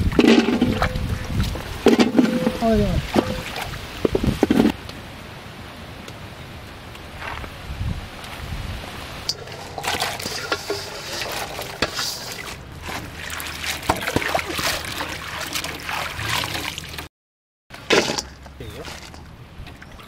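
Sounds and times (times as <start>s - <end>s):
water splashing and trickling: 0.0s - 4.8s, 9.0s - 17.1s, 17.7s - 20.0s.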